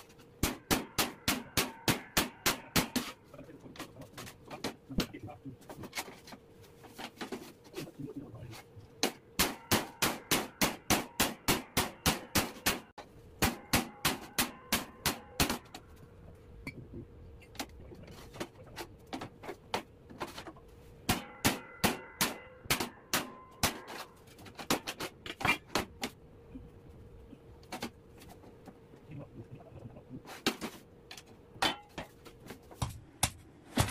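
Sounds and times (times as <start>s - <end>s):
hammer striking steel: 0.4s - 3.2s, 9.0s - 15.8s, 21.1s - 24.1s, 31.6s - 32.1s.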